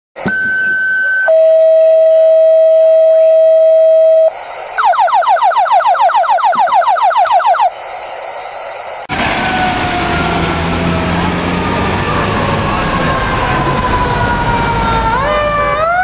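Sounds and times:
two-tone radio paging tones: 0.2s - 7.7s.

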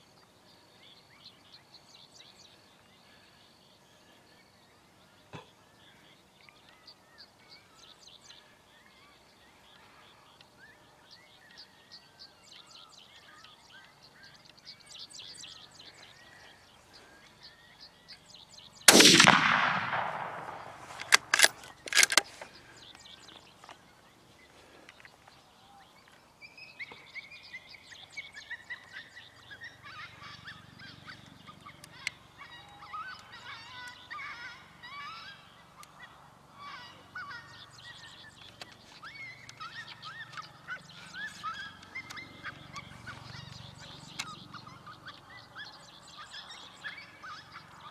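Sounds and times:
birds chirping: 0.1s - 47.9s
high bird calls: 5.4s - 23.8s, 24.4s - 47.9s
gunshot echoing: 18.9s - 21.6s
sharp gunshot cracks: 18.9s - 22.2s.

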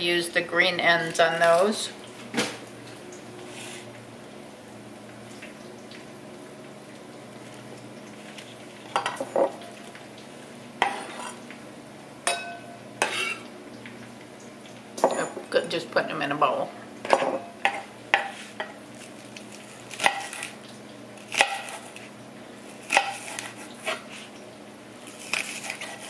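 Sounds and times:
bacon sizzling in a pan: 6.5s - 15.0s.

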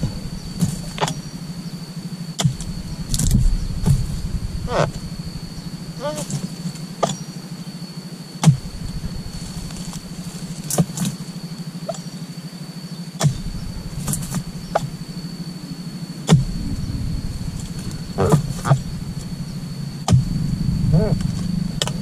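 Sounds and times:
steady low hum: 0.0s - 22.0s
chisel chopping palm fronds: 2.3s - 4.2s, 6.0s - 7.3s, 8.4s - 11.3s, 13.2s - 15.0s.

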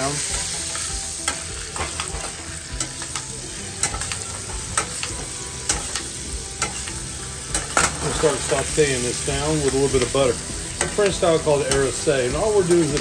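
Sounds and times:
butter sizzling in a pan: 0.0s - 13.0s
metal spoon clicking on pan: 0.7s - 4.2s.

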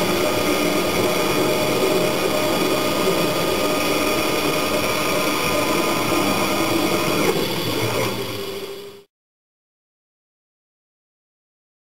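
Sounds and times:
machine hum with whining tones: 0.0s - 9.1s.

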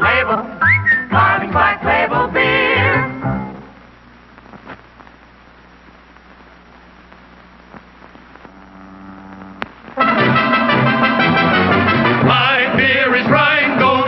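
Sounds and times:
film soundtrack hiss: 0.0s - 14.0s
low hum: 2.2s - 14.0s
faint crackling clicks: 3.8s - 10.0s
loud music: 10.0s - 14.0s.

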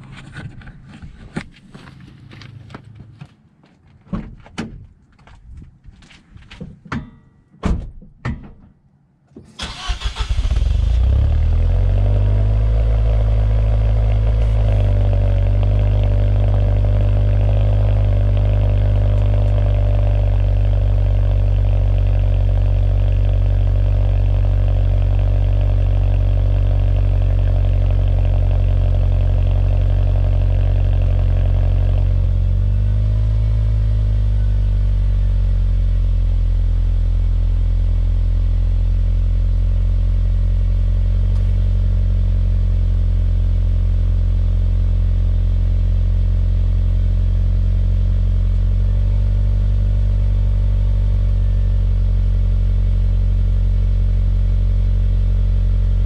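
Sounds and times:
sharp clicks and knocks: 6.0s - 9.5s
car engine cranking and idling: 9.4s - 56.0s.

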